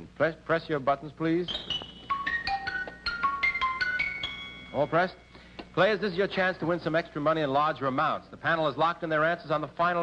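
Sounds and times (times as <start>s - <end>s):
bell-like chime tones: 1.5s - 5.4s.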